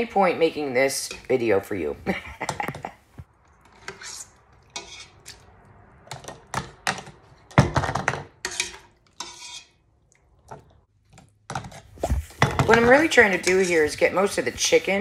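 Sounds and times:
metal spoon scraping pot: 3.6s - 7.1s, 8.4s - 9.9s, 11.5s - 15.0s.

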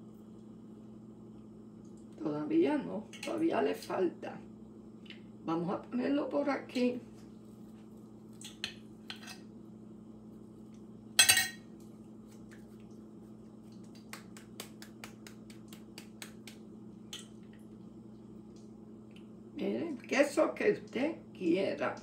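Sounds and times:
hands patting dough: 12.2s - 16.9s.

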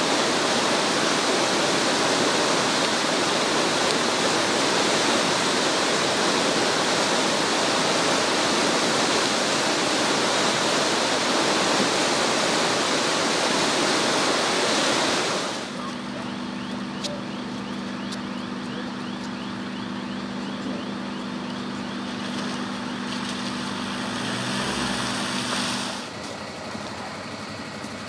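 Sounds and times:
river rushing: 0.0s - 16.6s, 21.6s - 26.6s.

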